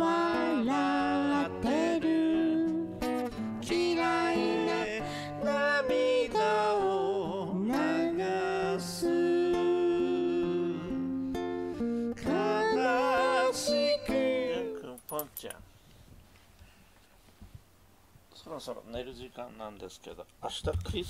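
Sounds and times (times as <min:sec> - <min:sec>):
man singing a slow ballad: 0:00.0 - 0:02.8, 0:03.6 - 0:11.3, 0:12.2 - 0:15.1
guitar accompaniment: 0:00.0 - 0:15.5.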